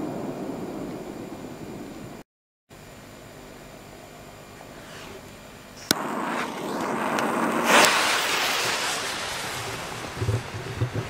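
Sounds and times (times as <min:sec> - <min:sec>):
fuse hissing: 0:04.2 - 0:10.7
sharp crack: 0:04.9 - 0:11.0.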